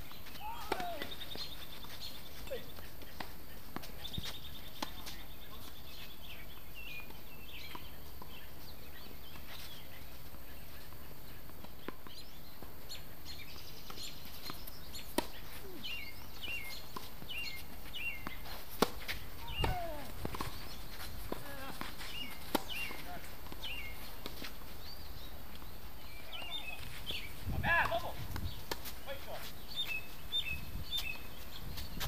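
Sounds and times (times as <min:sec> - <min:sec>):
birds chirping: 0:00.0 - 0:32.0
racket hitting tennis ball: 0:00.4 - 0:01.2, 0:18.2 - 0:20.6, 0:21.3 - 0:24.5.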